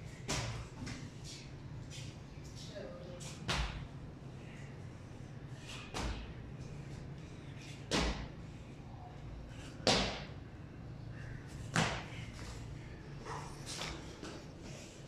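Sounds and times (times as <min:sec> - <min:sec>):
child jumping on concrete stairs: 0:00.2 - 0:01.1, 0:07.9 - 0:08.3, 0:09.8 - 0:10.3, 0:11.7 - 0:12.6.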